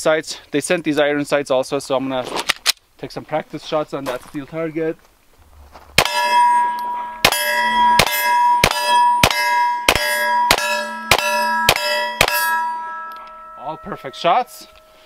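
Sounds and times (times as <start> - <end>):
steel target ringing: 6.0 - 15.0.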